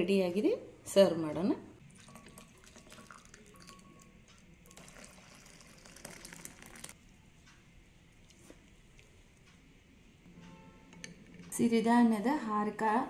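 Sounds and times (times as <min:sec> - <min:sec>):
soup pouring and splashing: 0:01.8 - 0:07.0.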